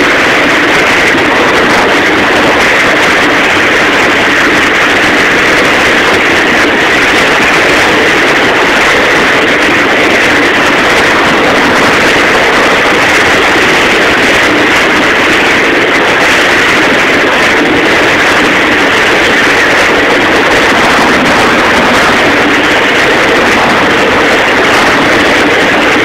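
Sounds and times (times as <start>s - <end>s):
boat motor: 0.0s - 26.0s
boat wake rushing: 0.0s - 26.0s.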